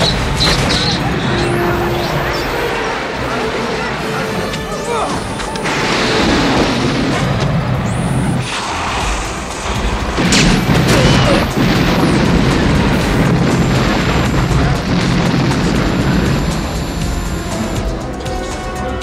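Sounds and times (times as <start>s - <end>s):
booms and explosions: 0.0s - 18.5s
action film music: 0.0s - 19.0s.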